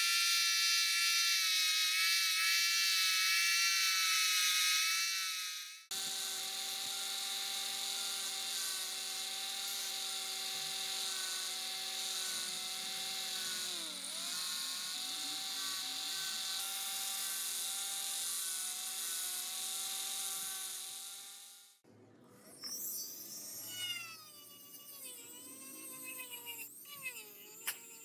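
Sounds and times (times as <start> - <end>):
electric sander motor whine: 0.0 - 21.8.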